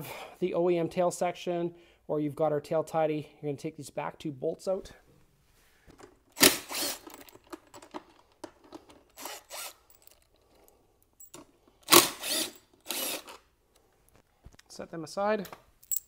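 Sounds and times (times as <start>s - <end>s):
power tool unscrewing bolts: 6.4s - 10.3s.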